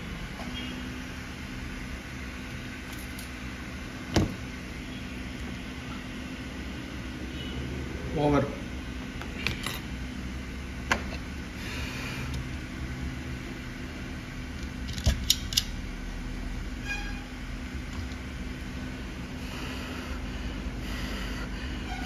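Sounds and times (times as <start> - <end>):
low machine fan hum: 0.0 - 22.0.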